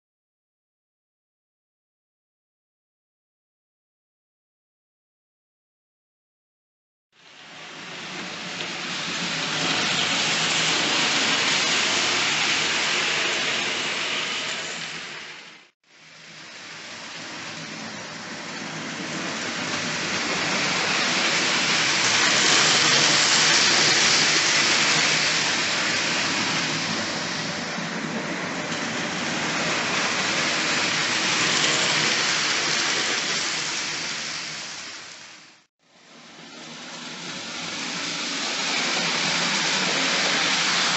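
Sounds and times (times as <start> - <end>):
model train wheels rattling on rail: 7.7 - 15.4, 16.6 - 34.9, 36.5 - 40.9.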